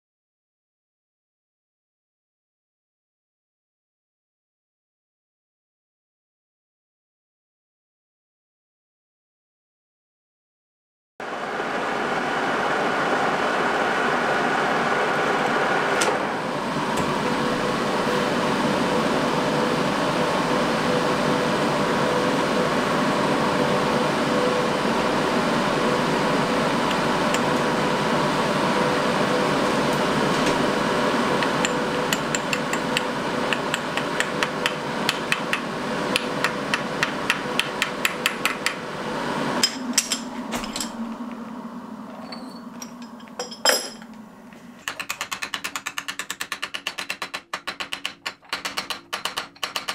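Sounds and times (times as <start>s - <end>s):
metal lathe humming: 11.3s - 44.7s.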